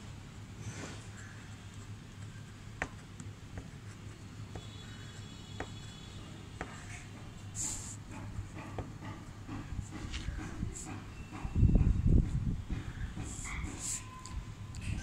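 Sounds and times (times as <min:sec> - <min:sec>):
pen nib ticking on paper: 0:01.1 - 0:11.5.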